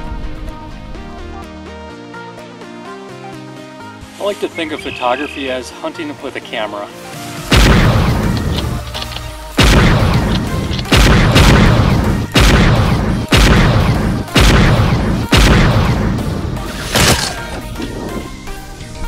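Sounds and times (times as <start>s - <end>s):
background music: 0.0s - 19.0s
loud gunshot-like booms: 7.5s - 8.3s, 9.6s - 17.3s.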